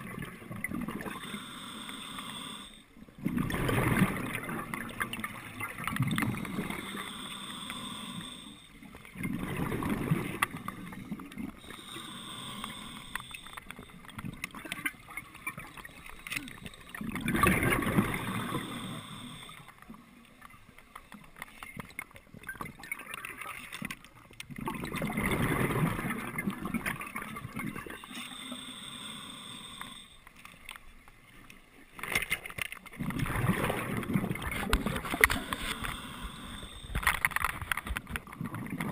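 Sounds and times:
bubbling exhales: 0.0s - 19.5s, 24.6s - 30.1s, 33.0s - 37.5s
regulator hissing inhales: 1.2s - 2.9s, 6.5s - 8.8s, 11.6s - 14.0s, 18.2s - 19.7s, 28.0s - 30.3s, 35.1s - 37.0s.

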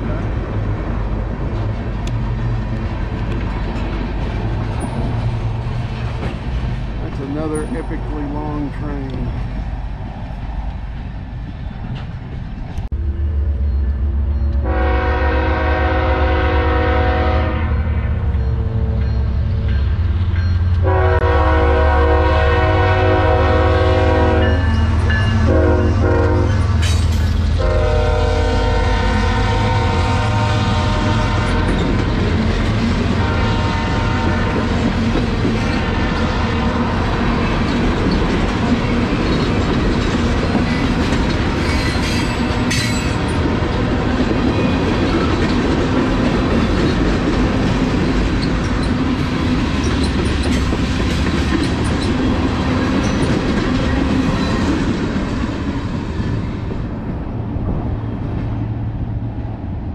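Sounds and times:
train wheels clacking on rails: 0.0s - 9.5s, 29.0s - 56.9s
diesel engines rumbling: 0.0s - 59.9s
locomotive horn: 14.6s - 18.0s, 20.8s - 24.8s, 25.4s - 26.6s, 27.6s - 32.0s, 33.1s - 34.8s, 35.7s - 36.8s.

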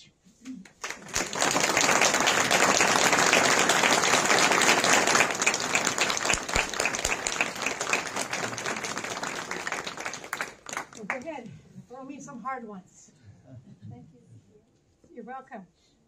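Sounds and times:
audience applauding: 0.8s - 11.3s.

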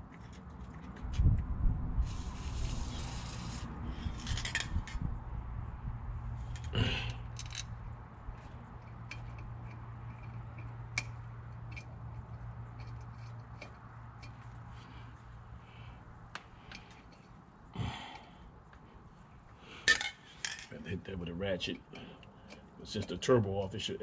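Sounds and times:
metal bolts clinking and scraping: 4.0s - 5.0s, 6.4s - 14.9s, 16.6s - 17.4s, 19.8s - 20.8s.

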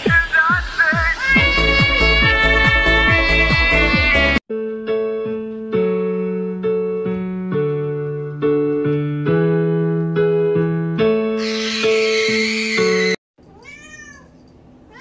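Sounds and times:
loud dance music: 0.0s - 4.4s
slow piano chords: 4.5s - 13.2s.

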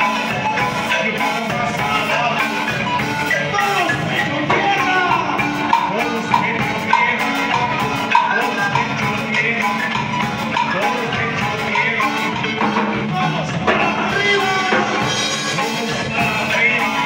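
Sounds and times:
drum kit dance beat: 0.0s - 17.0s
marimba playing: 0.0s - 17.0s.

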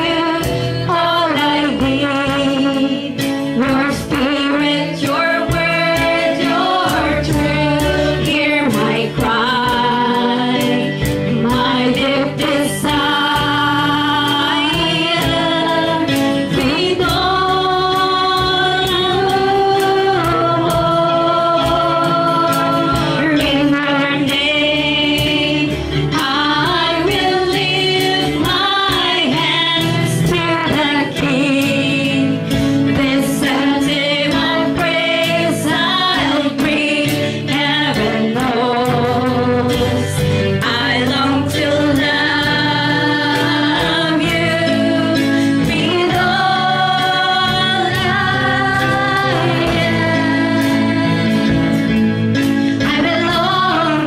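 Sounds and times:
instrumental accompaniment: 0.0s - 54.0s
woman singing: 0.0s - 54.0s.

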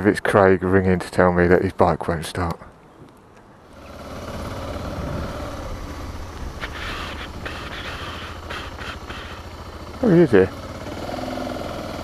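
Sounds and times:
motorcycle engine at low revs: 3.6s - 12.0s.

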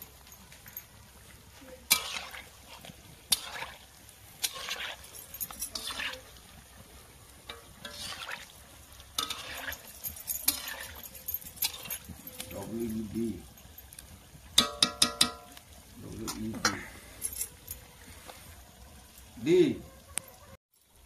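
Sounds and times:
cakes sizzling in oil: 0.0s - 21.0s
stick clinking in wok: 9.2s - 12.6s, 14.6s - 15.6s.

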